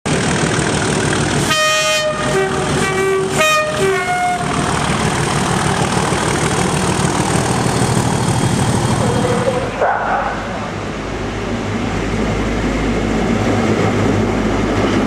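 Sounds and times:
diesel engine rumble: 0.1 - 15.0
locomotive two-tone horn: 1.4 - 4.8.

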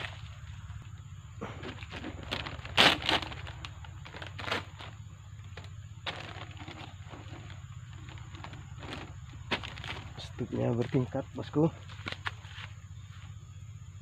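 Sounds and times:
plastic sheet crackling: 1.8 - 10.3.

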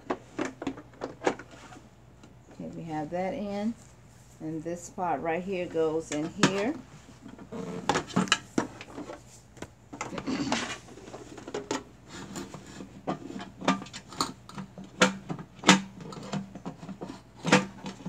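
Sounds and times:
plastic parts knocking and clicking: 0.0 - 1.6, 6.1 - 18.0.

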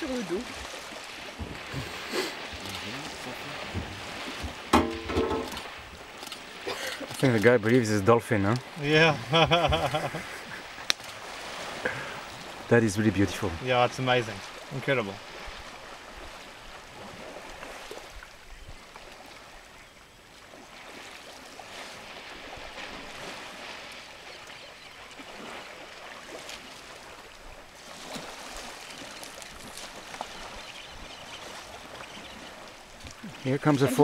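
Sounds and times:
water sloshing and splashing: 0.0 - 34.0.

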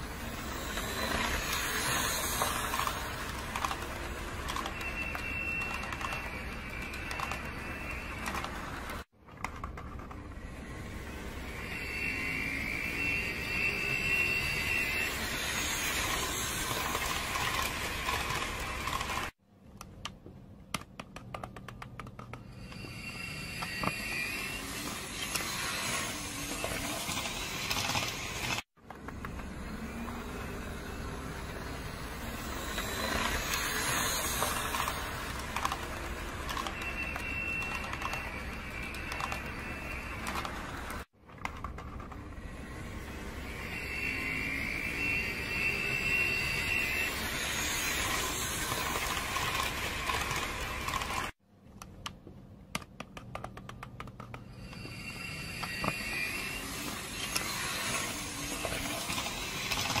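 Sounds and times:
model train motor whirring: 0.0 - 9.0, 10.3 - 19.4, 22.5 - 41.1, 42.1 - 51.4, 54.6 - 60.0
wheels rolling over rail joints: 0.0 - 19.3, 23.6 - 51.3, 54.6 - 60.0
high steady whine: 10.3 - 19.3, 42.4 - 51.3.

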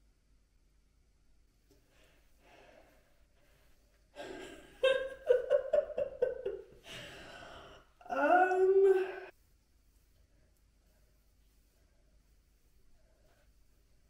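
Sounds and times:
woman breathing out: 6.8 - 7.9.

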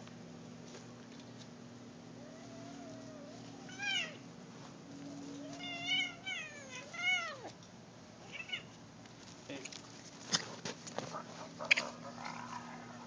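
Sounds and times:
cat meowing and yowling: 2.2 - 4.2, 5.1 - 7.5.

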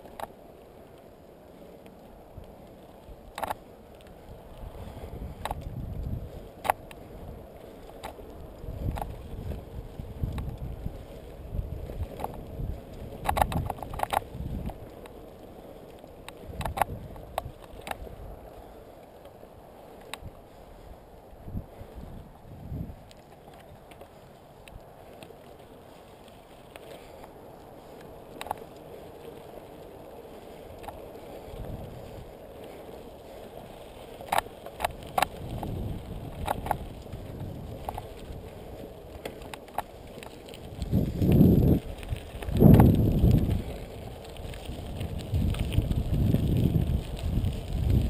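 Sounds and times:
bike rattling over bumps: 0.0 - 48.0
bike tyres rolling on dirt: 0.0 - 48.0
low rumbles over rough ground: 0.0 - 48.0
wind on microphone: 4.3 - 15.0, 16.4 - 18.5, 20.2 - 23.1, 31.4 - 32.8, 34.3 - 48.0.

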